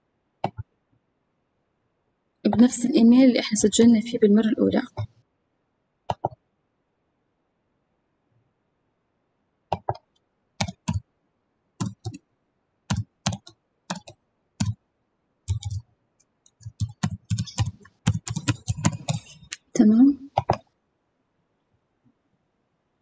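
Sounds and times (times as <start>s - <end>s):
computer keyboard typing: 6.1s - 6.4s, 9.7s - 11.0s, 11.8s - 12.2s, 12.9s - 14.8s, 15.5s - 20.7s.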